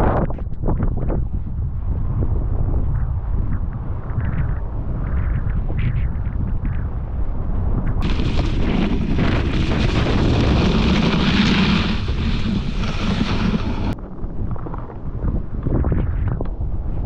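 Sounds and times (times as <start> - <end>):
wind buffeting microphone: 0.0 - 17.0
skis hissing through snow: 8.0 - 14.0.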